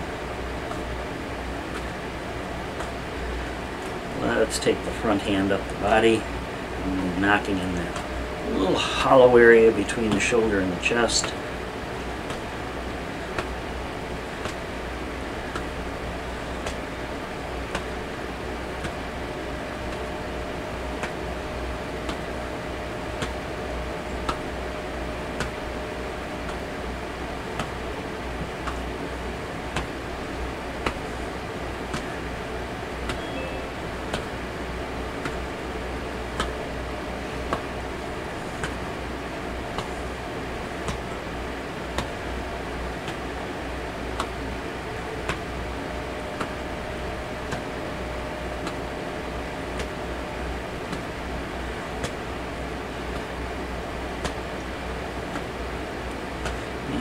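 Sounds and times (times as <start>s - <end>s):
steady background hum: 0.0s - 57.0s
fists tapping on chest: 0.3s - 4.0s, 7.4s - 8.5s, 9.8s - 57.0s
fists knocking on body: 16.6s - 16.9s.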